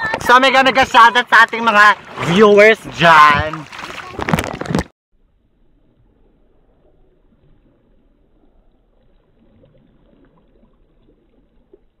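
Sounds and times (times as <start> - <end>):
water trickling: 5.6 - 12.0.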